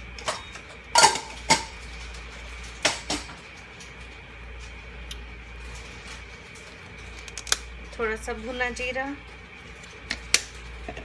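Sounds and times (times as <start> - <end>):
spoon clinking on steel containers: 0.3 - 1.7.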